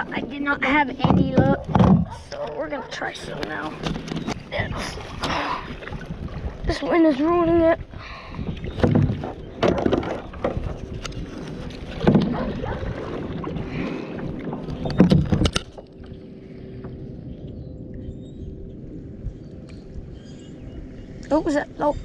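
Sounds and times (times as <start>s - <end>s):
wind rumbling on microphone: 0.0s - 22.0s
kayak paddle strokes in water: 8.3s - 16.2s.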